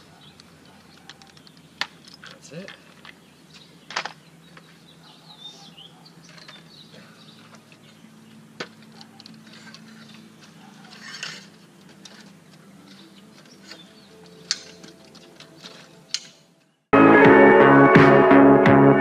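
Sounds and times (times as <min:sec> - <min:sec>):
faint bird chirps: 0:03.2 - 0:11.0
metal stand clicks and knocks: 0:08.6 - 0:16.4.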